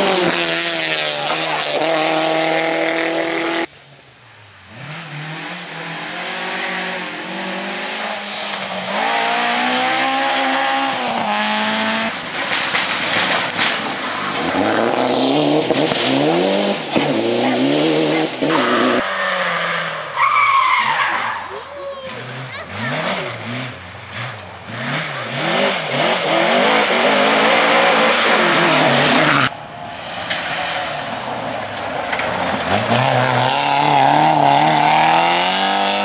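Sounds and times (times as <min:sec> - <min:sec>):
rally car engines revving: 0:00.0 - 0:03.8, 0:04.6 - 0:36.0.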